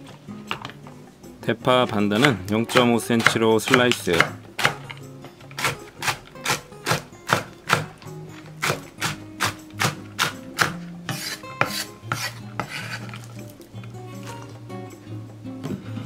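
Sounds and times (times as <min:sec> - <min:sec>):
knife chopping on wooden board: 0:02.2 - 0:13.3
knife scraping across board: 0:08.4 - 0:13.5.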